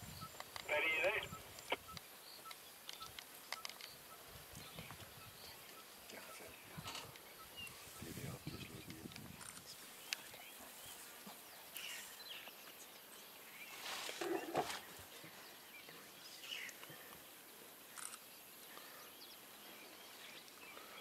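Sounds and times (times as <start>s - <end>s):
bird chirps: 0.1s - 14.6s.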